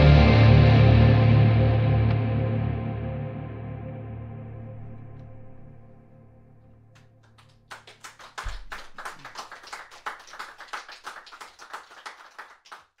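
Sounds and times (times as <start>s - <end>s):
music sustained notes: 0.0s - 7.3s
audience applause: 7.3s - 13.0s.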